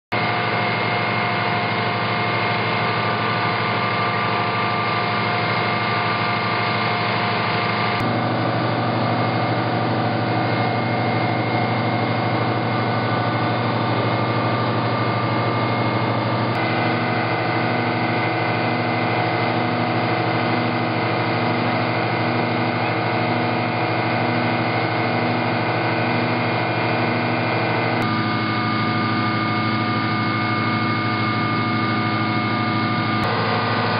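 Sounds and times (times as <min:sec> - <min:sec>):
drilling rig engine running: 0:00.1 - 0:33.9.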